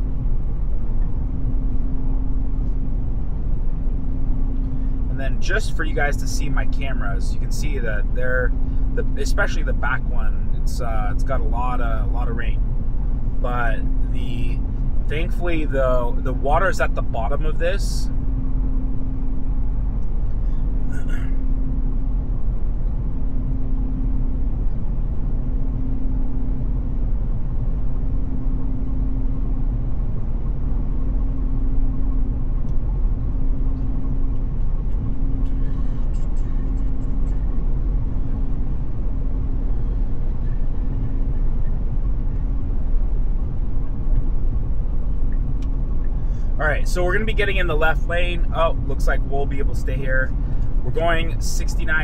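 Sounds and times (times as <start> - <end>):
intermittent hum: 0.0 - 52.0
tyres and rain road rumble: 0.0 - 52.0.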